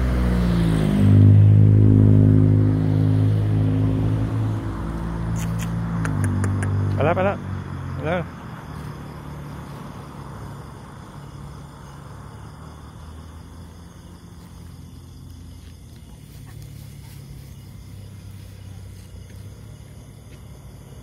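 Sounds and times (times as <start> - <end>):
road noise: 0.0 - 21.0
vehicle engine idling: 8.0 - 20.4.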